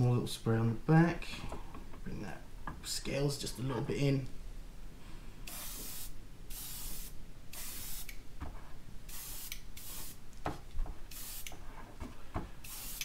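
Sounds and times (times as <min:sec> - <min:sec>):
airbrush spraying hiss: 0:05.4 - 0:08.2, 0:09.1 - 0:10.2, 0:11.1 - 0:11.6, 0:12.6 - 0:13.0.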